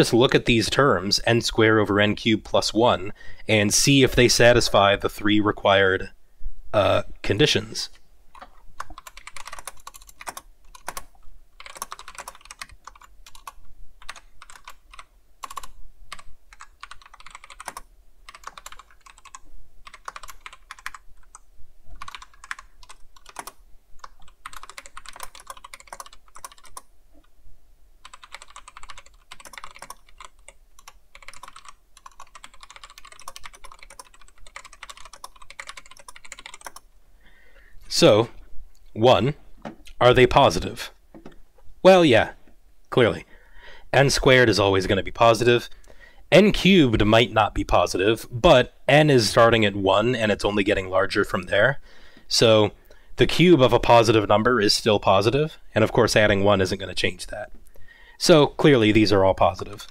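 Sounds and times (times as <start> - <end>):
typing on computer keyboard: 8.3 - 26.9, 28.0 - 36.9.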